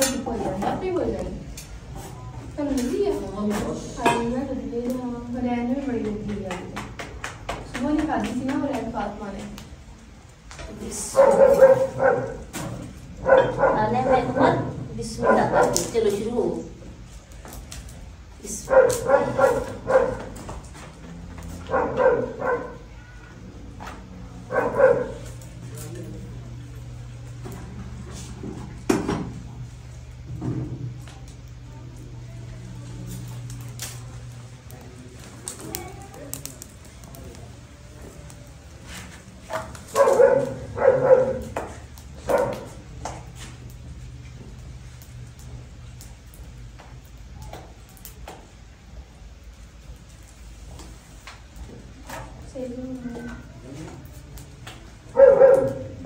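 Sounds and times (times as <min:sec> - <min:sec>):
dog barking: 0:11.1 - 0:12.4, 0:13.2 - 0:15.9, 0:18.6 - 0:20.3, 0:21.6 - 0:23.0, 0:24.5 - 0:25.3, 0:39.5 - 0:41.5, 0:42.2 - 0:42.8, 0:55.1 - 0:56.0.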